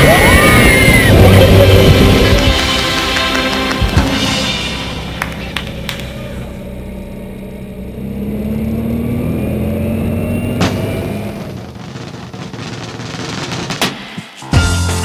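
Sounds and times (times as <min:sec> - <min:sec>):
music: 0:00.0 - 0:06.6, 0:13.7 - 0:15.0
car engine driving: 0:00.0 - 0:13.8.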